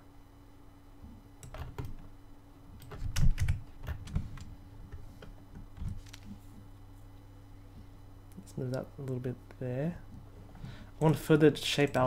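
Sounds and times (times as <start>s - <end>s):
keyboard keys clicking: 2.8s - 4.5s.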